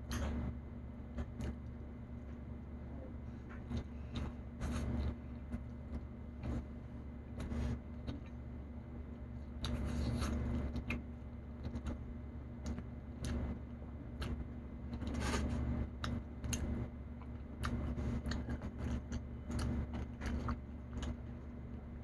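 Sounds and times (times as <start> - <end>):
low electrical hum: 0.0 - 22.0
person chewing and lip smacking: 7.4 - 8.4, 9.6 - 12.0, 12.6 - 21.5.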